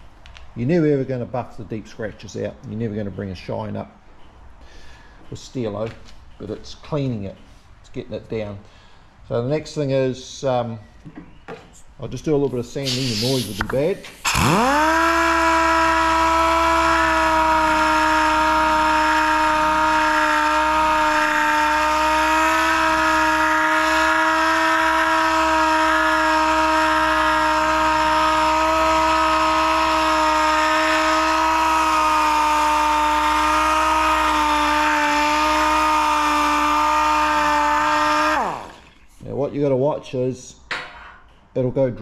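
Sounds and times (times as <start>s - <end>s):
power sander whining: 12.9s - 39.0s.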